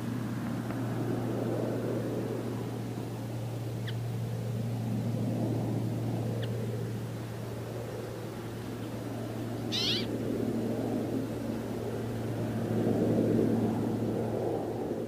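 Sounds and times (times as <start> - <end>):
low hum and rumble: 0.0 - 15.0
bird call: 9.7 - 10.1.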